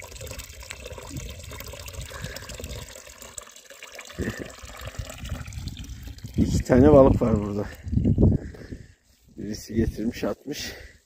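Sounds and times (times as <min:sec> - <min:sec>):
water stream splashing into pool: 0:00.0 - 0:08.1.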